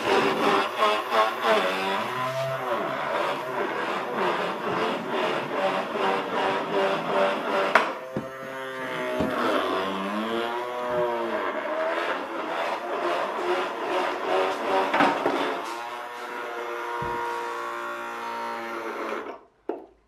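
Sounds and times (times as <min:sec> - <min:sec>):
small toy motor whining: 0:00.0 - 0:14.8, 0:15.8 - 0:19.4
shaft rubbing wheel rim: 0:00.0 - 0:15.7.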